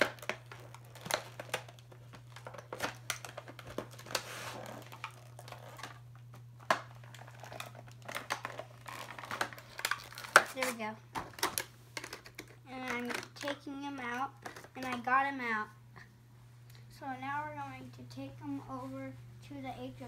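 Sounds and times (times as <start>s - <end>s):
cardboard and plastic crinkling: 0.0s - 15.0s.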